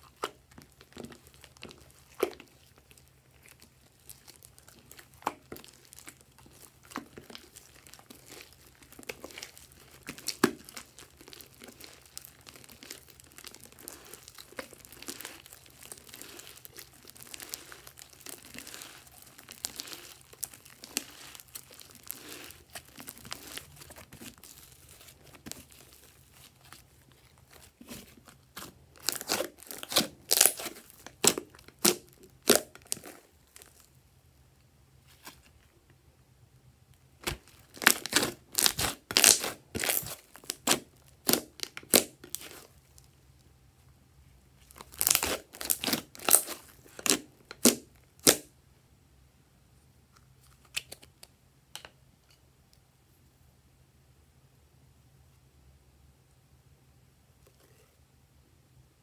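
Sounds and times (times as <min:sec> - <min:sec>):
slime kneaded by hand: 0:00.0 - 0:34.0, 0:37.0 - 0:43.4, 0:44.5 - 0:48.6
slime popping and snapping: 0:37.2 - 0:42.6, 0:44.9 - 0:48.5.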